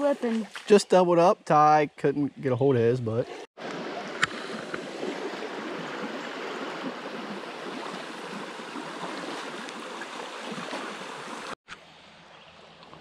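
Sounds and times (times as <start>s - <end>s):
creek water rushing over rocks: 3.6s - 11.6s.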